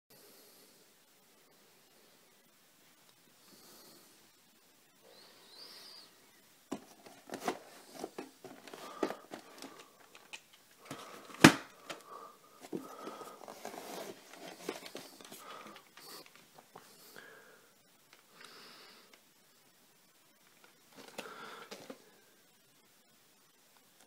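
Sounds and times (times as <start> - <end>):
tape cases clicking and scraping: 6.7 - 12.0, 12.6 - 16.6.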